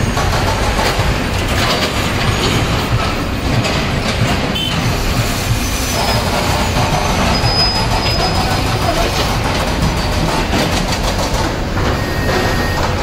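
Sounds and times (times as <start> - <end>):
heavy diesel vehicles rumbling: 0.0 - 13.0.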